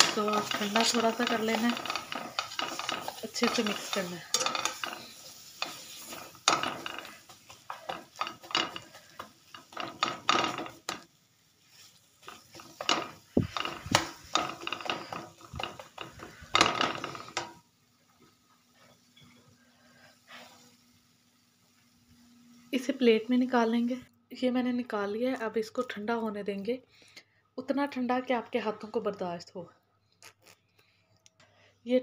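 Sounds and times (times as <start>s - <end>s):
spatula scraping frying pan: 0.0s - 17.6s, 18.8s - 20.9s.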